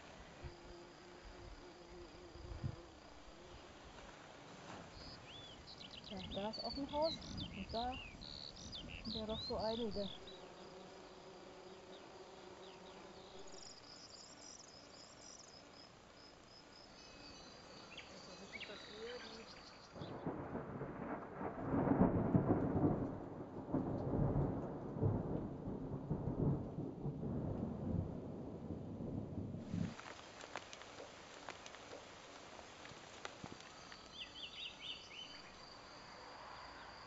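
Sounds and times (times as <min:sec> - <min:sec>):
insect buzz: 0:00.0 - 0:22.6, 0:29.6 - 0:37.0
faint birdsong chirps: 0:04.7 - 0:20.6, 0:31.5 - 0:37.0
wind buffeting microphone: 0:04.9 - 0:10.2.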